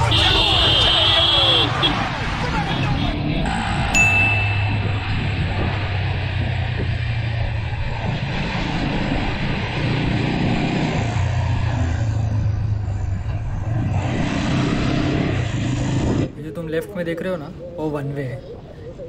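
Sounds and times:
motorcycle engine drone: 0.0 - 16.4
wind rushing over microphone: 1.6 - 16.7.

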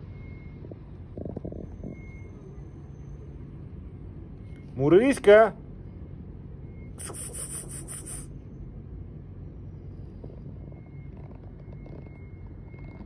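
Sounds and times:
rubbing scrape: 7.0 - 8.3.

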